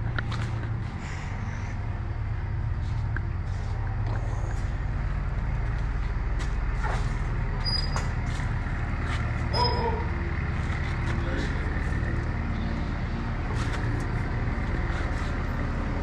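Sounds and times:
truck engine idling: 0.0s - 16.0s.

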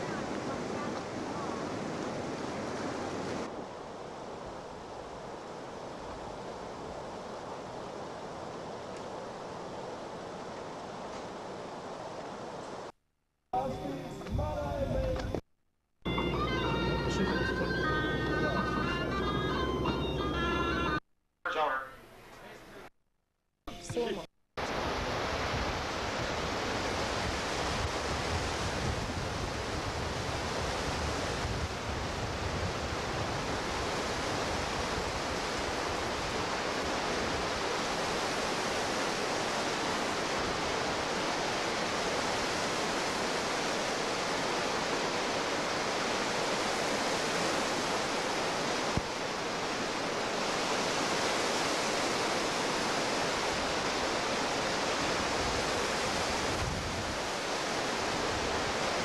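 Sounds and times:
whitewater rapids rushing: 33.4s - 59.0s.

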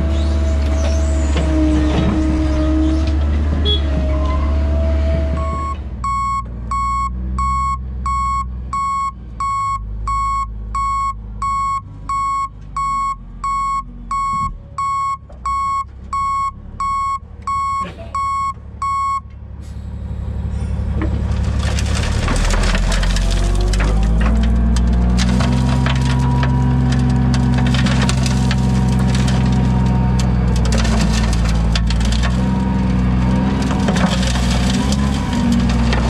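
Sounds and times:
diesel engine rumble: 0.0s - 36.0s
backup alarm beeping: 5.4s - 19.2s.

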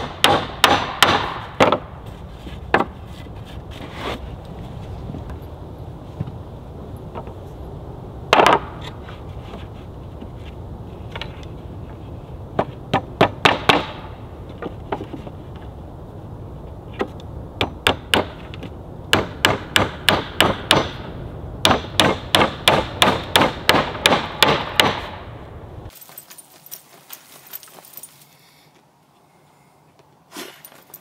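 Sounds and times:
hammer nailing boards: 0.0s - 1.9s, 12.6s - 15.1s, 19.1s - 25.2s.

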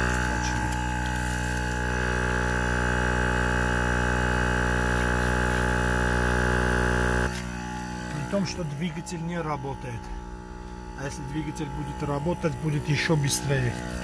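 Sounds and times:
air compressor motor humming: 0.0s - 14.0s
high-pitched whine: 7.1s - 14.0s.

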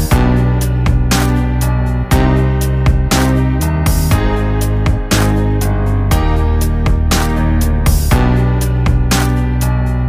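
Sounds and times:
sustained notes over a beat: 0.0s - 10.0s.

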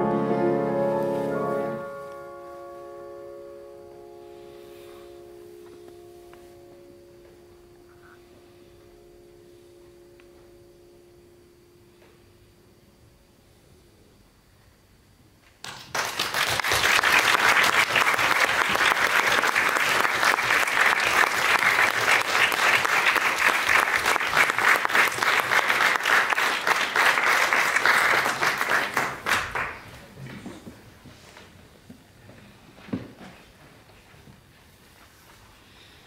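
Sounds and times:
audience applauding: 15.6s - 30.4s.

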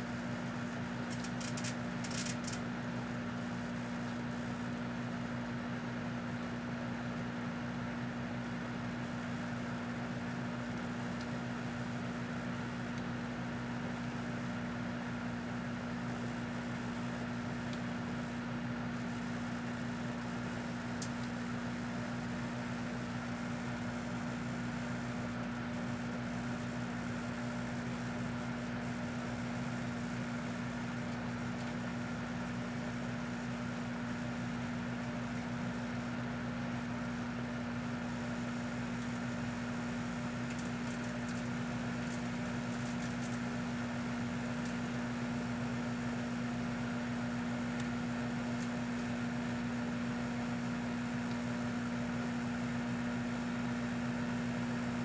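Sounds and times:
microwave oven humming: 0.0s - 55.0s
faint crackles of arcing: 0.6s - 2.6s, 37.8s - 52.0s.

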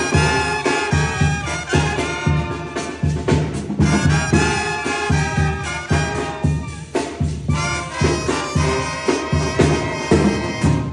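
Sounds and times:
bass drum beat: 0.0s - 10.9s
brass band playing: 0.0s - 10.9s.

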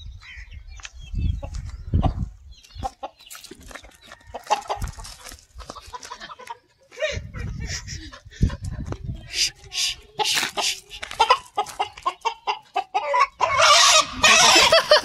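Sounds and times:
rooster clucking: 2.8s - 6.6s, 9.3s - 15.0s.

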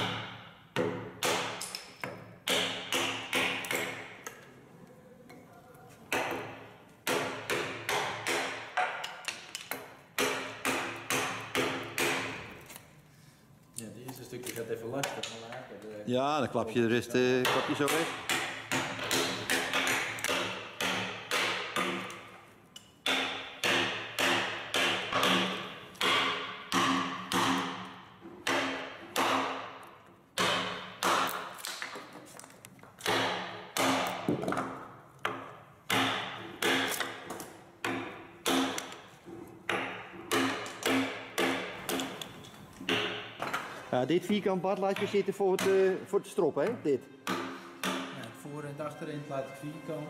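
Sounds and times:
mallet striking steel chisel into wood: 0.0s - 4.1s, 6.1s - 12.5s, 17.4s - 22.3s, 23.0s - 29.8s, 30.4s - 31.6s, 33.0s - 39.0s, 39.7s - 43.6s, 47.2s - 48.3s.

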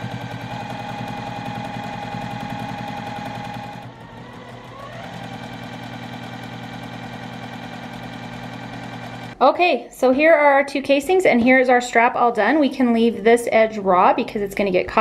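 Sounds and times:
sewing machine running: 0.0s - 9.4s.

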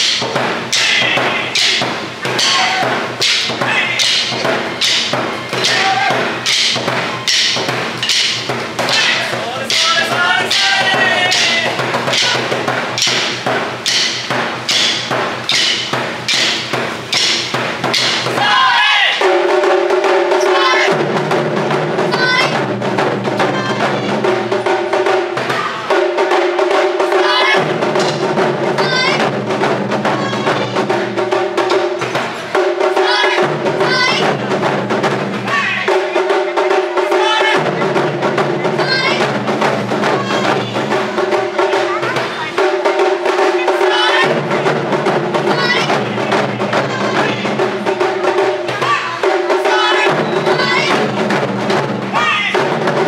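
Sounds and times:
large drums beaten in rhythm: 0.0s - 53.0s.

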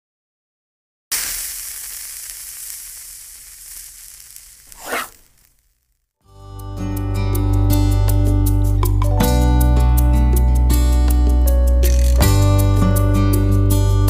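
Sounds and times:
sizzling sound effect: 1.1s - 6.0s
short whoosh: 4.7s - 5.4s
music: 6.2s - 14.0s.

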